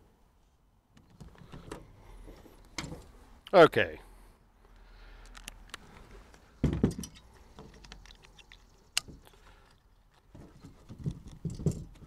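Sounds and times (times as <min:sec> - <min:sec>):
strap buckle clicking: 0:05.2 - 0:06.4, 0:07.0 - 0:10.3
power tool set down with a thud: 0:06.6 - 0:07.2.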